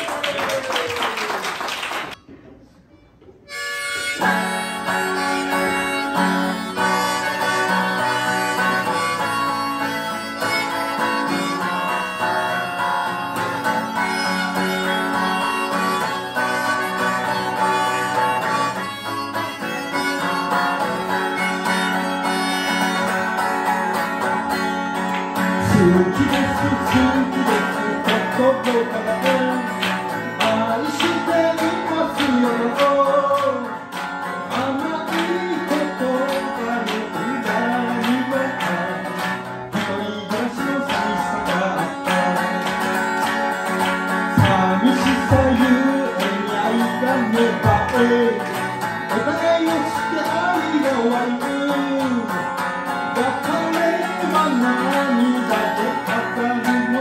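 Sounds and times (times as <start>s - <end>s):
harmonica melody: 3.3s - 57.0s
strummed acoustic guitar: 3.4s - 57.0s
person singing: 4.1s - 19.0s, 25.6s - 43.1s, 44.3s - 52.5s, 53.2s - 57.0s.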